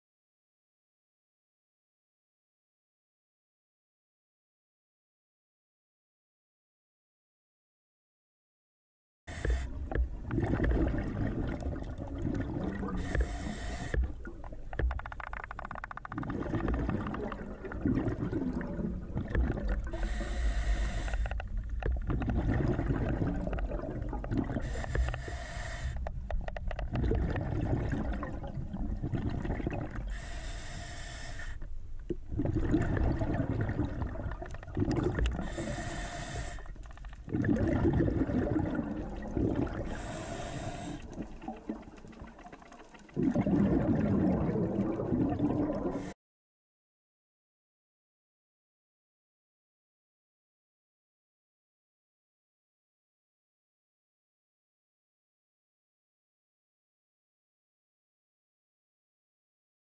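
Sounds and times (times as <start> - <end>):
scuba regulator breathing: 9.3 - 10.0, 12.7 - 14.3, 19.8 - 21.7, 24.5 - 26.4, 30.0 - 31.7, 35.2 - 37.2, 39.8 - 41.5
exhaled bubbles rushing: 9.8 - 20.3, 22.0 - 24.8, 26.8 - 30.1, 32.1 - 35.8, 37.1 - 46.1.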